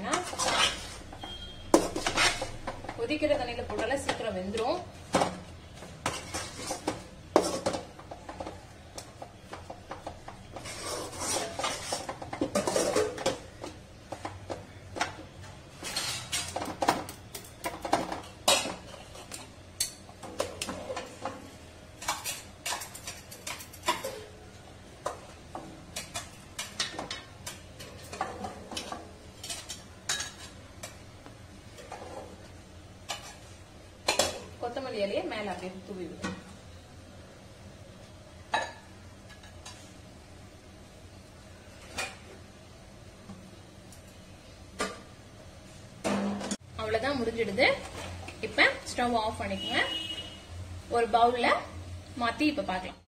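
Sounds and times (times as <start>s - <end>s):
metal spatula scraping a pan: 0.0s - 2.7s, 6.0s - 7.8s, 10.4s - 13.3s.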